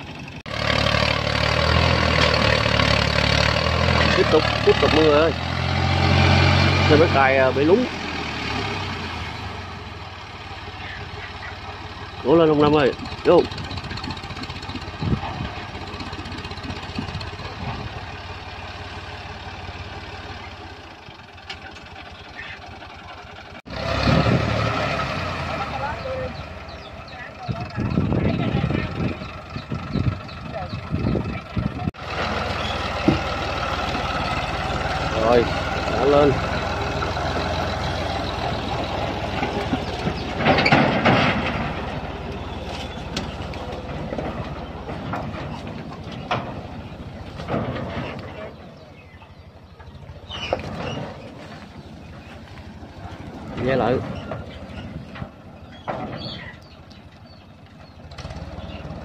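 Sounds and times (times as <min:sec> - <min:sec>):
tractor engine straining: 0:00.0 - 0:59.0
thumps: 0:37.3 - 0:48.6.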